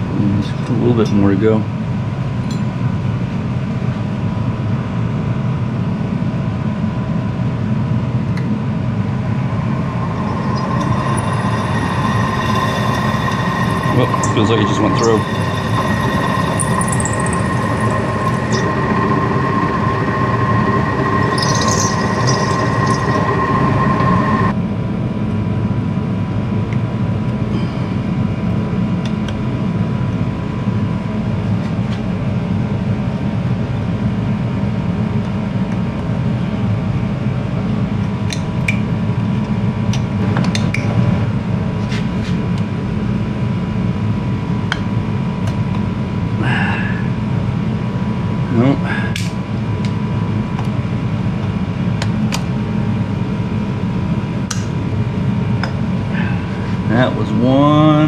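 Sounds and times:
steady background hum: 0.0 - 58.0
milling machine spindle humming: 9.2 - 24.6.

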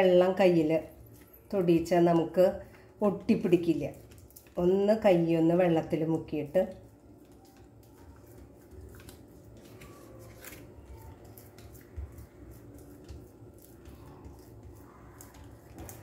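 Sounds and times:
low steady hum: 0.0 - 16.0
wet hands pressing dough: 0.0 - 16.0
leaf rustling: 7.4 - 14.5.

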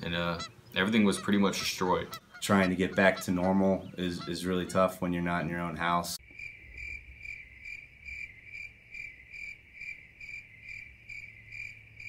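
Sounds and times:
crickets chirping: 6.2 - 12.0.

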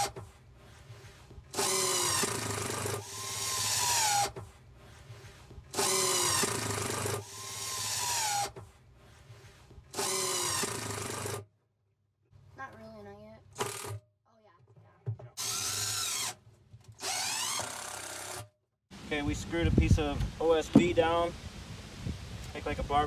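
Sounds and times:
impact driver running screws: 1.5 - 4.4, 5.7 - 8.6, 9.9 - 11.4, 13.6 - 14.0, 15.4 - 18.5.

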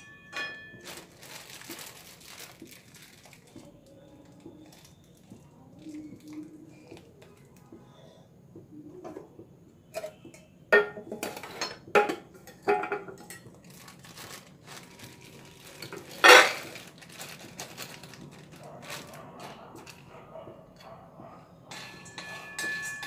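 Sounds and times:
dishes and utensils clattering: 0.0 - 2.4, 9.0 - 20.1, 21.6 - 23.0.

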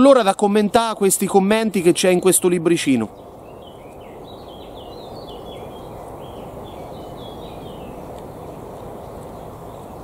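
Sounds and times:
bird whistling song: 3.1 - 10.0.

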